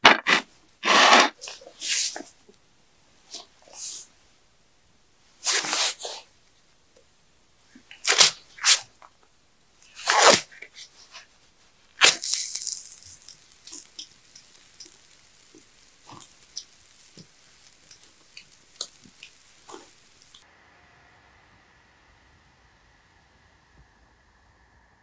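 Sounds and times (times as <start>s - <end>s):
brief hiss: 5.4s - 6.3s.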